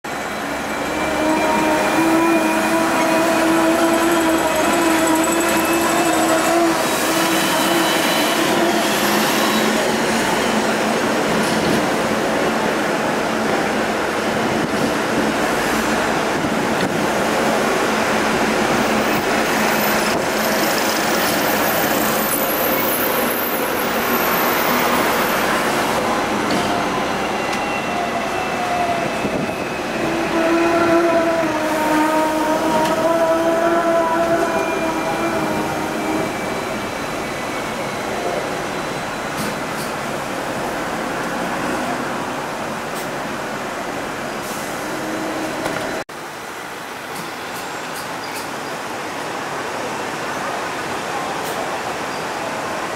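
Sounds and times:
tram wheels rumbling on rails: 0.1s - 46.0s.

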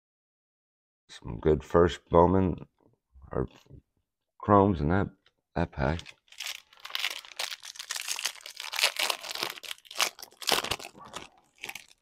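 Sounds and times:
foil wrapper crinkling: 6.0s - 12.0s.

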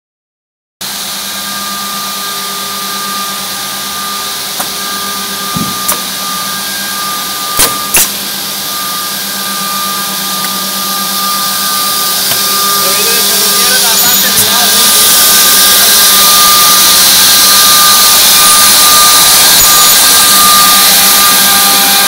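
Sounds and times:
machine motor hum with hiss: 0.8s - 22.0s
sharp machine clicks: 7.6s - 8.2s.

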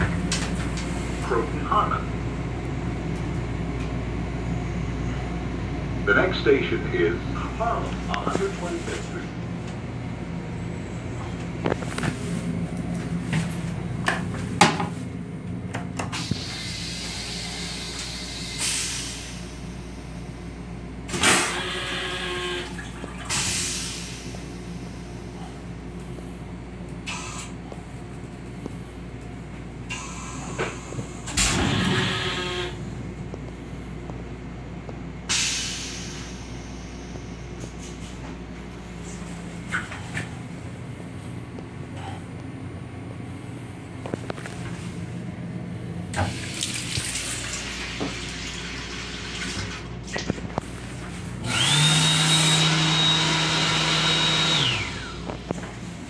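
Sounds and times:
train car rumble: 0.0s - 21.9s, 23.3s - 46.4s
hand dryer whining: 31.5s - 32.8s, 51.4s - 55.5s
short air hisses: 35.3s - 36.5s
faucet running water: 46.2s - 49.9s.

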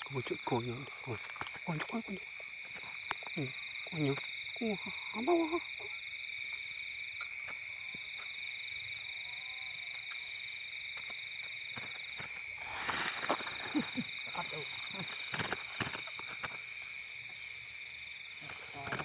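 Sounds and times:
night animal chorus: 0.0s - 19.0s
grass and dry leaves rustling: 11.0s - 17.6s.

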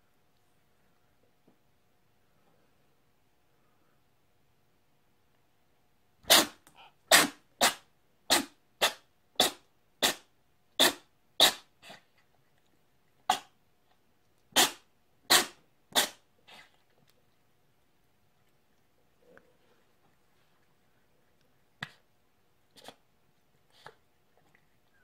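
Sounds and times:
cat sneezing: 6.2s - 12.1s, 13.3s - 13.6s, 14.5s - 16.7s.

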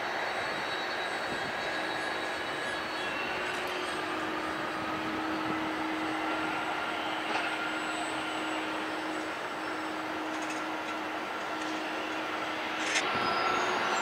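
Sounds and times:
jet engines idling: 0.0s - 14.0s.

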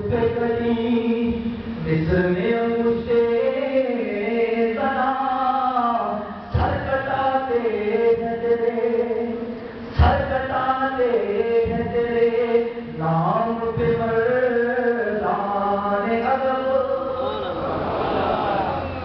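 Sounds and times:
man chanting devotional verse: 0.0s - 17.7s.

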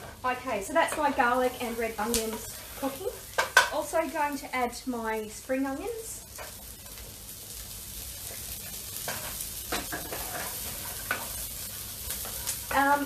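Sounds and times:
wooden spoon scraping a pan: 0.0s - 3.8s, 8.2s - 13.0s
onions sizzling in a frying pan: 0.0s - 13.0s.

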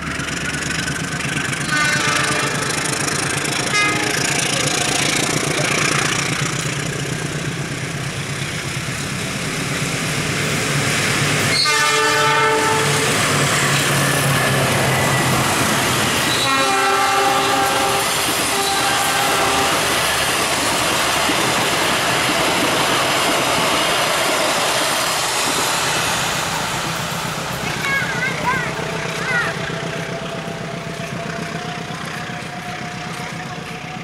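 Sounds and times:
locomotive engine droning: 0.0s - 34.0s
wheels clattering on rail joints: 0.0s - 34.0s
train horn: 1.6s - 3.0s, 3.6s - 5.1s, 11.5s - 13.2s, 16.3s - 20.0s.

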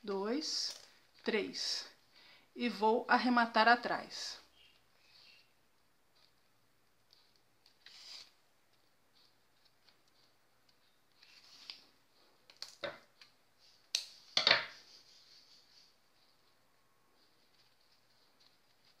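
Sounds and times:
ribbon rustling: 5.8s - 19.0s.

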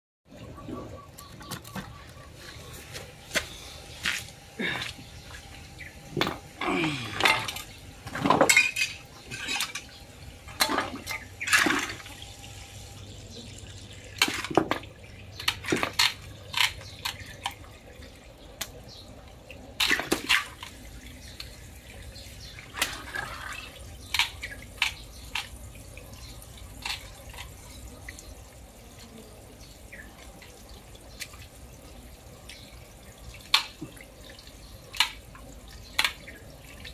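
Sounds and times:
water dripping and trickling: 0.4s - 36.9s
splashes: 10.5s - 12.2s, 19.6s - 25.6s.

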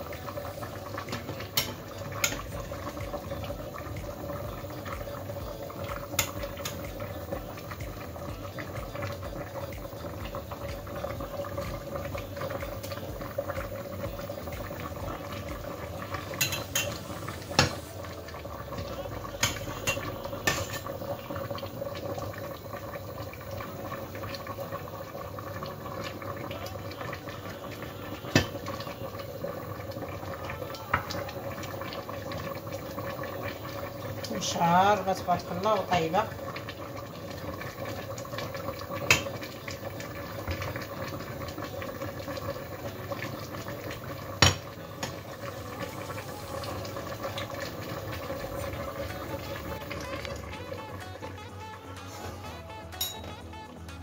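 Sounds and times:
pot boiling: 0.0s - 54.0s
utensils clinking against dishes: 16.4s - 17.0s, 53.0s - 53.4s.

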